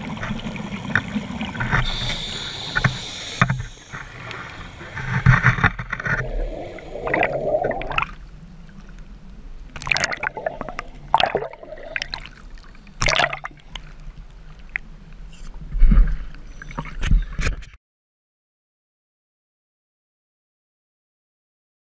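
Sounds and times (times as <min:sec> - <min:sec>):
underwater exhaled bubbles: 0:00.0 - 0:09.0, 0:09.7 - 0:13.8
low underwater rumble: 0:02.7 - 0:12.8.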